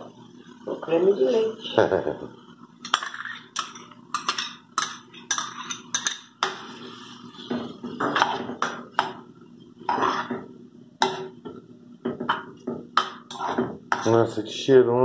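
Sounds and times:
metal spoon scraping and knocking: 13.0 - 14.2.

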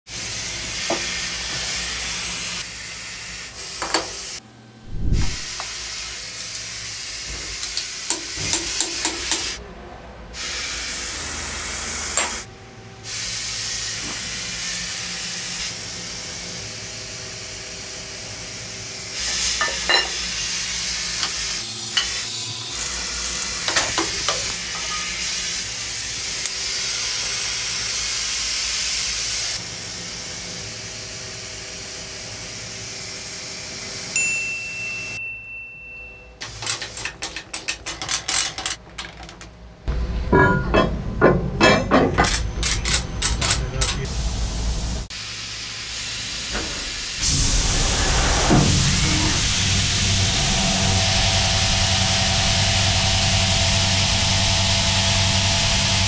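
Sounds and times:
hissing machine shop noise: 0.1 - 35.2, 36.4 - 56.0
metallic clicks and knocks: 36.4 - 39.6, 40.4 - 44.1.

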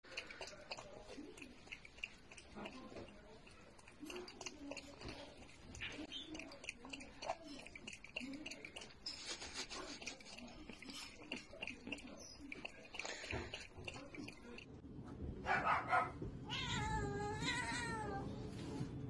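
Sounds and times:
animal lapping water: 0.0 - 14.8.

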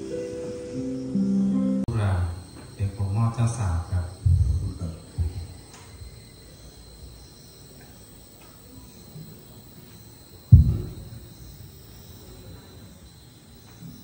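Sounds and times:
low thump: 10.5 - 11.8.

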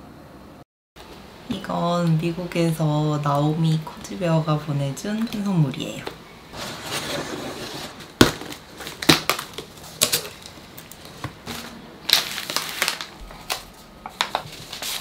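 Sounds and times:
packaging crackling and rustling: 6.6 - 15.0
packing tape pulled off: 8.5 - 15.0.

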